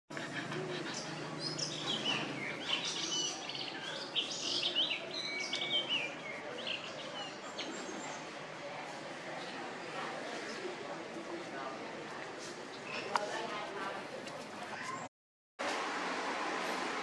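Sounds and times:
birds chirping: 0:00.1 - 0:08.4.

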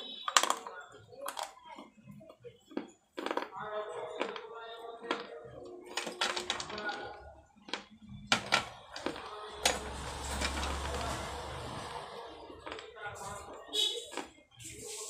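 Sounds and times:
clay pot pieces crunching: 0:00.2 - 0:01.9, 0:02.6 - 0:03.5, 0:04.2 - 0:04.4, 0:05.0 - 0:12.0.

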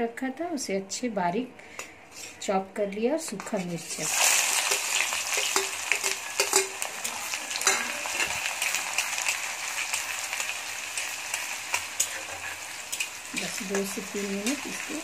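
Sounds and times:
spatula scraping and tapping pan: 0:03.3 - 0:08.4, 0:11.7 - 0:14.8
onions sizzling in hot oil: 0:03.8 - 0:15.0.

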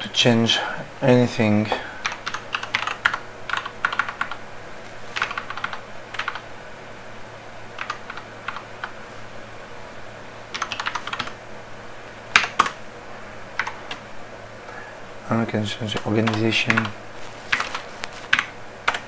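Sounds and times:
typing on a keyboard: 0:02.0 - 0:04.4, 0:05.2 - 0:06.4, 0:07.8 - 0:08.6, 0:10.5 - 0:11.4, 0:15.9 - 0:16.9.

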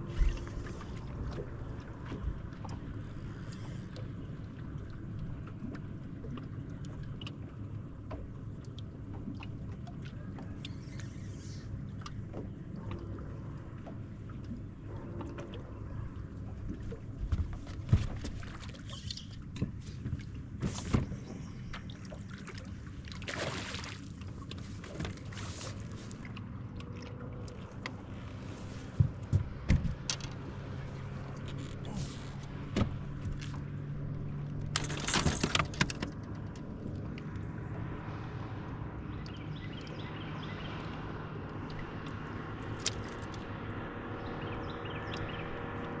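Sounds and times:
boat engine hum: 0:00.0 - 0:46.0
water noise: 0:00.0 - 0:46.0
knocks on boat hull: 0:29.0 - 0:30.0.

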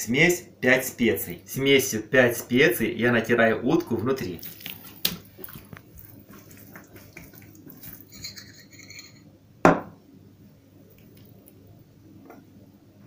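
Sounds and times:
spoon scraping and tapping jar: 0:07.1 - 0:09.2.

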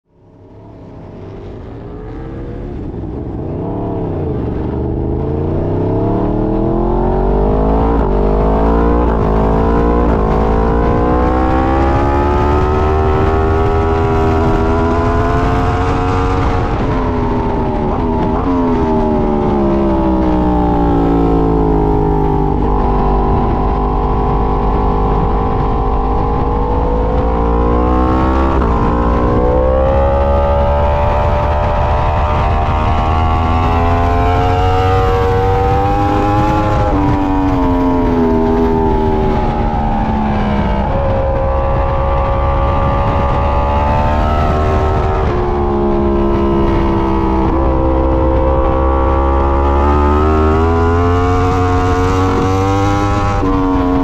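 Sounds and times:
motorcycle engine at racing speed: 0:00.0 - 0:54.0
wind rush: 0:00.2 - 0:54.0.

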